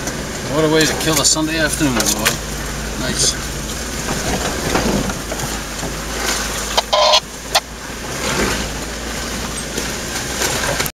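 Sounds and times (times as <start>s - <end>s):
engine and tyre rumble: 0.0s - 11.0s
knocks and rattles: 3.7s - 6.0s.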